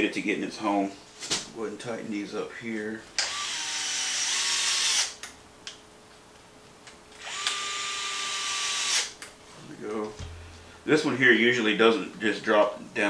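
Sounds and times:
cordless screwdriver running: 3.2 - 5.2, 7.2 - 9.2.

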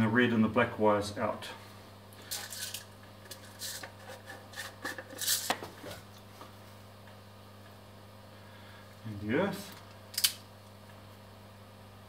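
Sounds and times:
clicks and rustles of handling tools: 2.2 - 6.5.

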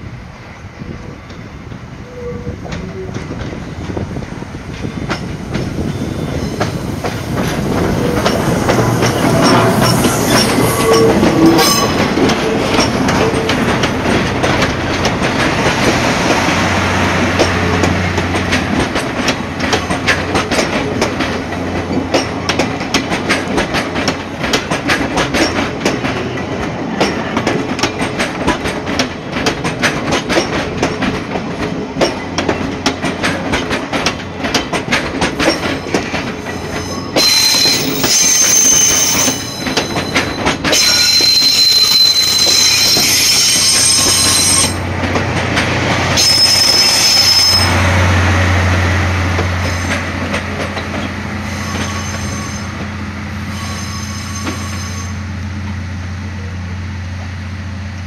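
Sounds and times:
steam locomotive: 0.0 - 58.0
wheel clicks over rail joints: 17.4 - 36.4.

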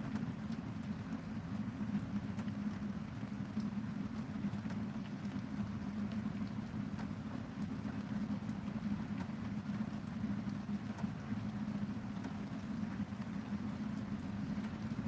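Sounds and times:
rain pattering: 0.0 - 15.0.

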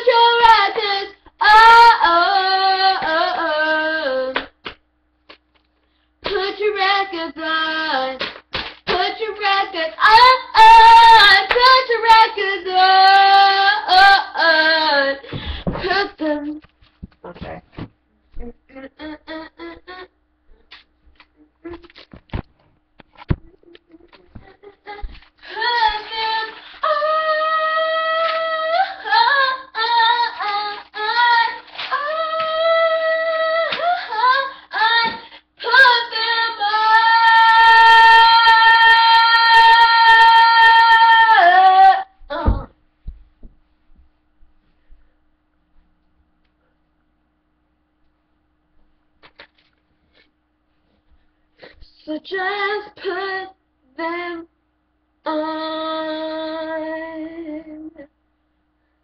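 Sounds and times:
girl singing a cappella: 0.0 - 4.5, 6.2 - 8.3, 8.9 - 16.6, 18.4 - 20.6, 23.4 - 42.8, 51.6 - 54.5, 55.2 - 58.1.

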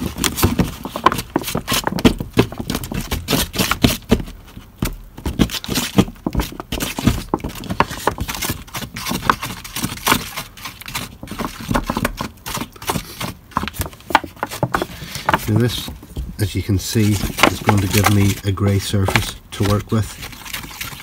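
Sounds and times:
mixing tool scraping container: 4.7 - 21.0.

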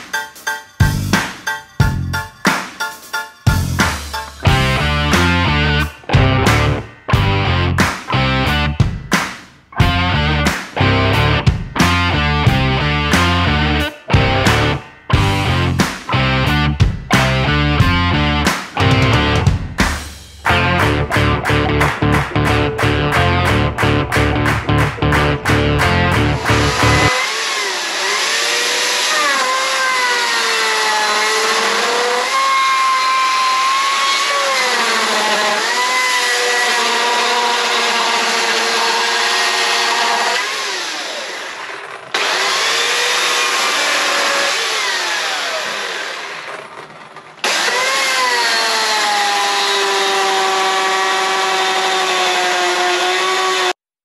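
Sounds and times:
chainsaw cutting wood: 3.9 - 6.9, 10.0 - 16.3, 20.5 - 53.8.

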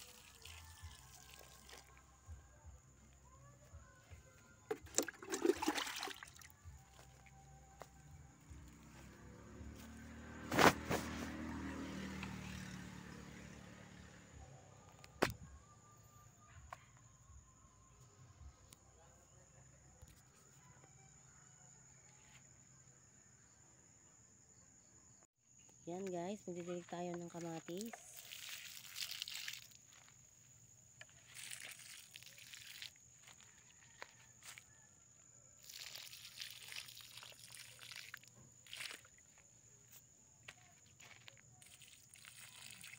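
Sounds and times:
water pouring from watering can: 0.0 - 2.1, 4.7 - 7.1, 27.4 - 30.2, 31.2 - 33.7, 35.6 - 39.2, 41.6 - 42.9
vehicle passing by: 6.9 - 15.2.

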